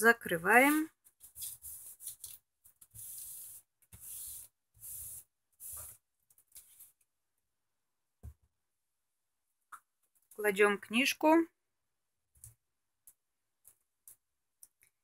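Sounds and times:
hands rubbing paper: 1.1s - 7.0s.

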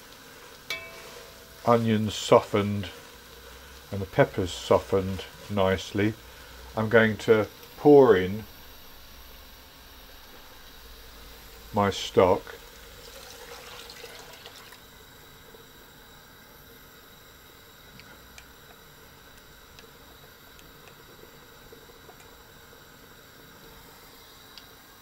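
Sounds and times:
faint steady hiss: 0.0s - 25.0s
liquid pouring into pan: 12.9s - 14.8s.

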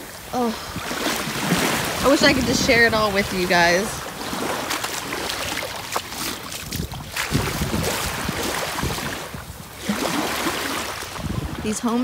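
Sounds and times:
small waves washing on sand: 0.0s - 12.0s
wind gusting on microphone: 0.0s - 12.0s.

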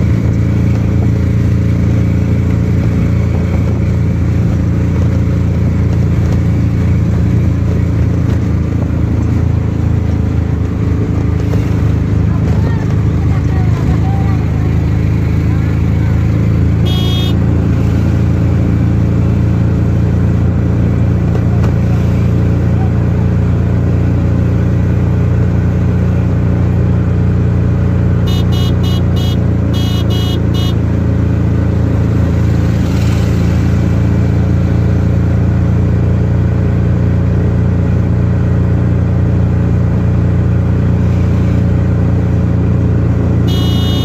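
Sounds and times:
vehicle engine running: 0.0s - 44.0s
wind and road noise: 0.0s - 44.0s
short horn beeps: 16.8s - 17.4s, 28.2s - 30.8s, 43.5s - 44.0s.

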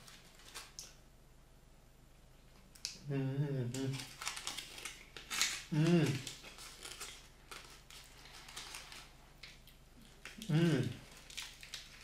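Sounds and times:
foil wrapper crinkling: 0.0s - 1.0s, 3.8s - 12.0s.

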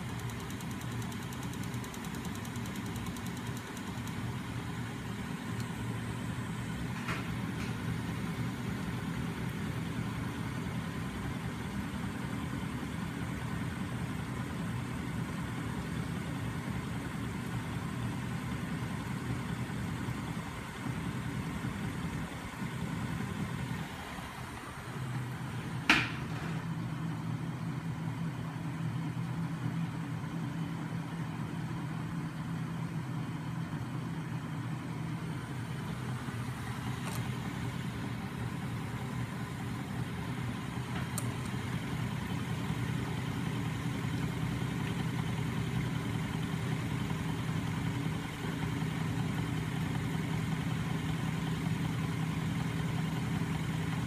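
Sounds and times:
sharp click: 37.0s - 37.3s.

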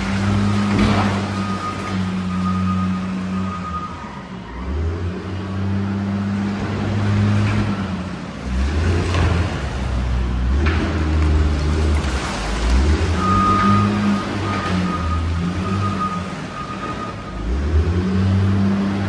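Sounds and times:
wheel loader diesel engine revving: 0.0s - 19.0s.

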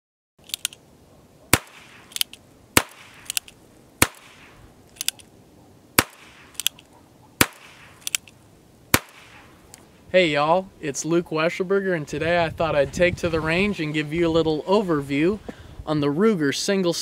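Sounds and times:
revolver hammer cocking clicks: 0.4s - 0.8s, 1.6s - 5.3s, 6.0s - 8.4s.

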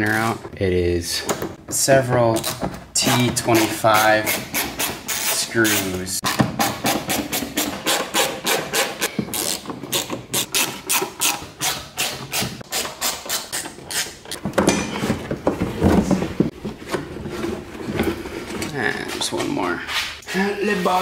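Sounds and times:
hand ratchet pawl rasping: 3.4s - 5.9s, 6.6s - 14.2s.

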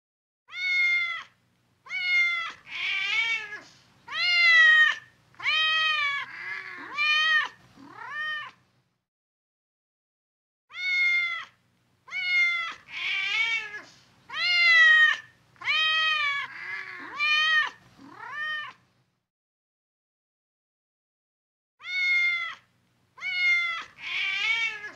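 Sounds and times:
cat meowing: 0.5s - 8.6s, 10.7s - 18.8s, 21.8s - 24.9s.

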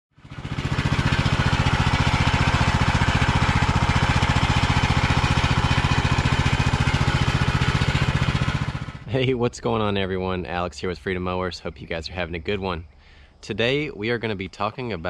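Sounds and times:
riding mower engine running: 0.2s - 9.3s.

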